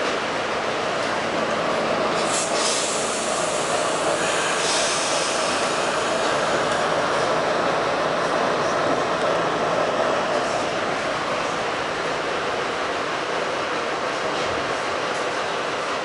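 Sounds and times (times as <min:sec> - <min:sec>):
subway wheels on rails: 0:00.0 - 0:16.0.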